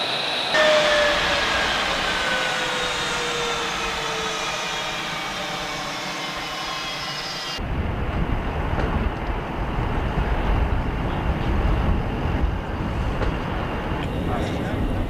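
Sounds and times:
high jet engine whine: 0.0s - 15.0s
wind buffeting microphone: 7.6s - 15.0s.

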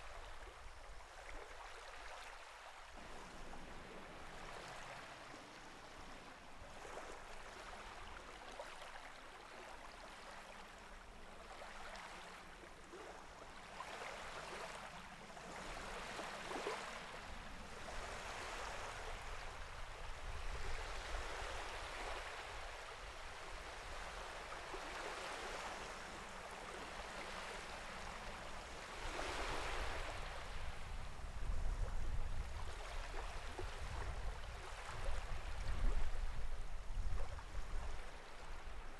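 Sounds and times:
sea waves washing: 14.1s - 31.8s.

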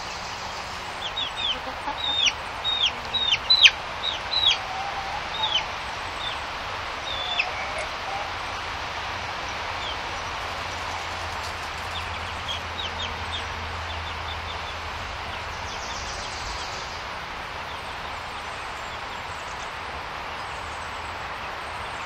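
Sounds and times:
chicks peeping: 0.0s - 17.0s
steady background hiss: 0.0s - 22.0s.

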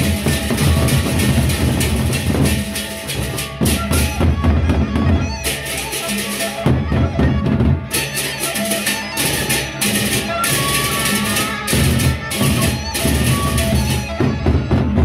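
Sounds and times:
hand cymbals clashing: 0.0s - 4.2s, 7.9s - 14.2s
barrel drums beaten: 0.0s - 15.0s.

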